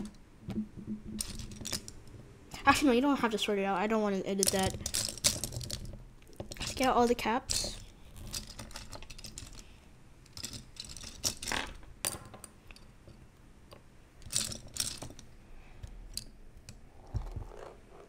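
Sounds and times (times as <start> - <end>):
plastic pieces clattering: 4.4 - 6.9.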